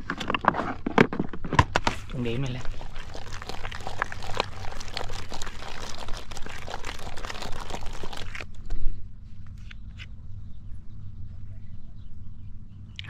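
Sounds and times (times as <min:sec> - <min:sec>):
fingers squishing groundbait in basin: 0:02.1 - 0:08.8.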